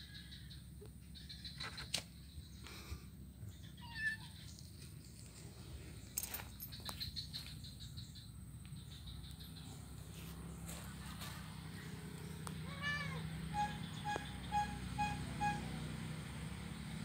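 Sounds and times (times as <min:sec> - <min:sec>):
kitten meowing: 0:12.6 - 0:13.2.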